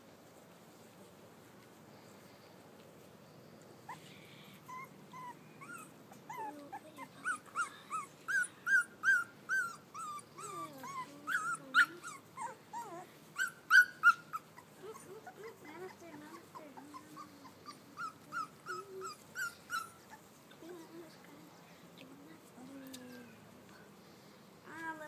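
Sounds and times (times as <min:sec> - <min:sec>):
puppies whining and yelping: 0:03.9 - 0:20.4.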